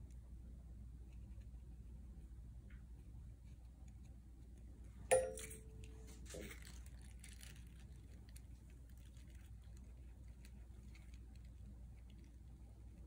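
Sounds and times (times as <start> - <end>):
short ring: 5.1 - 6.1.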